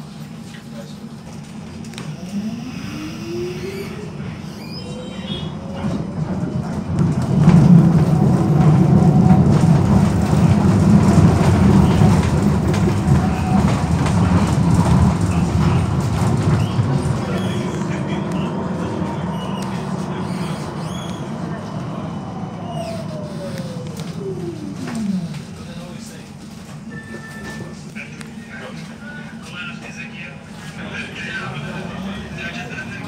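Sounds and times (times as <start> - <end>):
tram electric drive whining: 0.0 - 33.0
wheels rumbling over track: 0.5 - 26.9.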